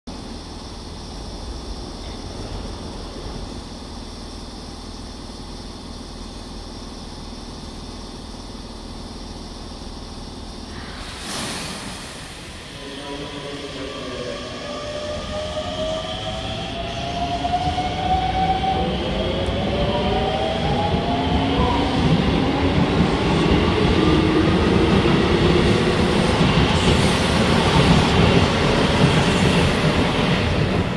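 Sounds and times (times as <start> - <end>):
air brakes hissing: 10.7 - 13.1.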